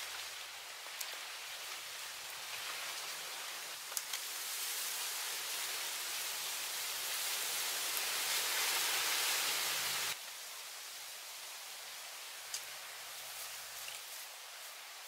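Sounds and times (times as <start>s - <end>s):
forest ambience hiss: 0.0s - 15.0s
faint clicks: 3.9s - 4.2s, 12.5s - 12.7s.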